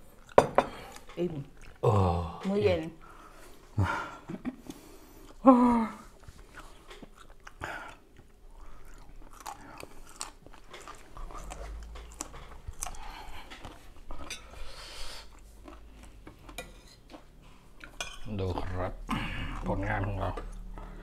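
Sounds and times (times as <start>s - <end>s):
people chewing: 0.0s - 21.0s.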